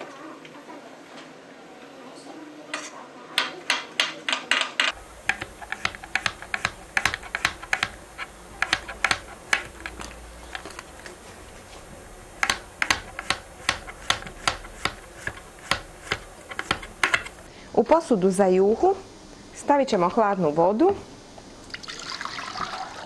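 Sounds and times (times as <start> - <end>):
knife tapping cutting board: 3.7 - 10.6, 12.4 - 17.4
knife slicing zucchini: 5.2 - 10.6, 12.4 - 17.4.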